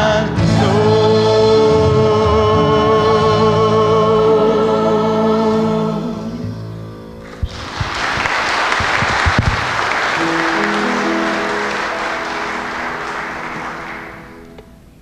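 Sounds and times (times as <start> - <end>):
congregation applauding: 7.2 - 14.8.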